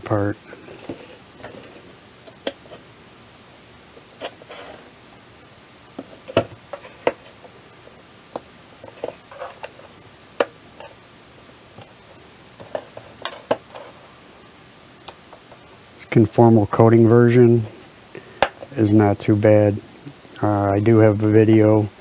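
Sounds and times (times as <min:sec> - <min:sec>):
metal scraping on plastic: 0:08.8 - 0:09.9.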